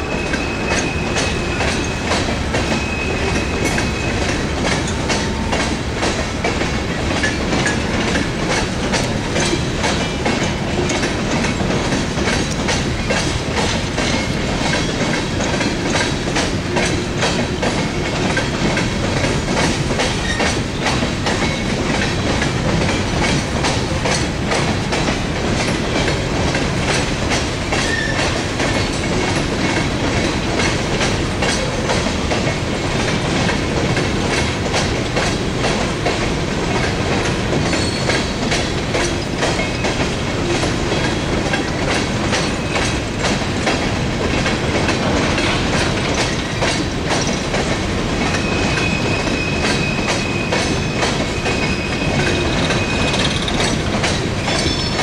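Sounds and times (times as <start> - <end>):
freight train wheels rumbling: 0.0 - 55.0
rail clicks and rattles: 0.0 - 55.0.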